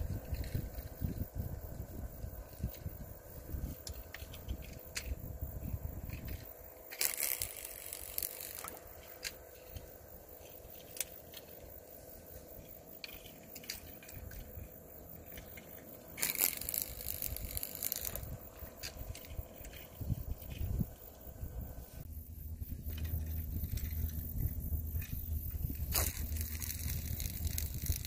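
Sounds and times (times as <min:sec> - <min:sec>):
crackling crunching rustle: 0:00.0 - 0:28.0
scattered clicks: 0:06.1 - 0:11.8, 0:12.6 - 0:20.7.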